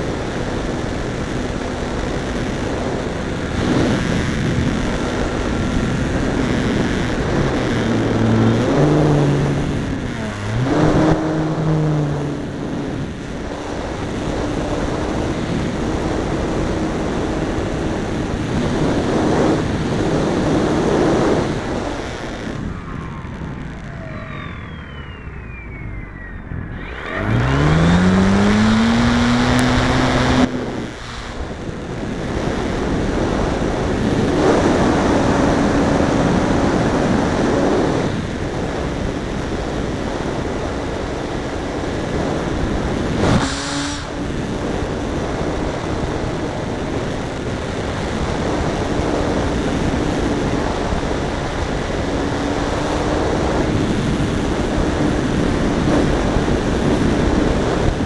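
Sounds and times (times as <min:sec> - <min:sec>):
electric motor whine: 0:00.0 - 0:33.8
wind rush over microphone: 0:00.0 - 0:58.0.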